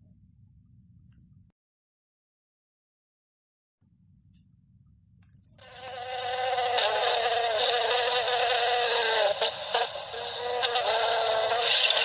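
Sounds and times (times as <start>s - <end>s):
lawn mower buzz from tiny speaker: 5.6s - 12.0s.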